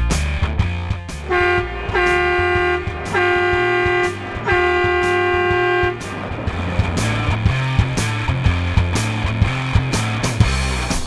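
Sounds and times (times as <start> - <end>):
rock music: 0.0 - 11.0
truck horn blasts: 1.2 - 8.0.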